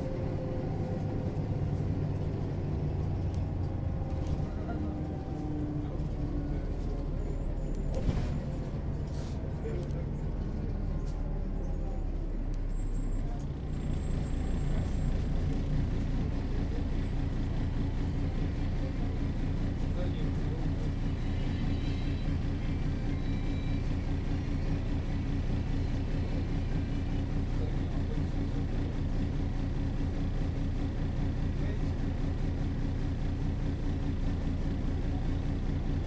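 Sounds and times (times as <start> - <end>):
bus diesel engine droning: 0.0 - 36.0.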